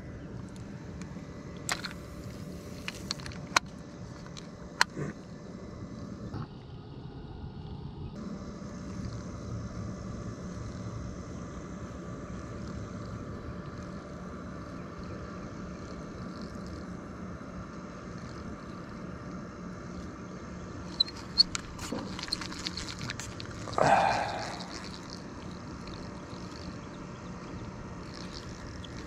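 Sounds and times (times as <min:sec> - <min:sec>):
squeaky rub: 0:20.9 - 0:23.8.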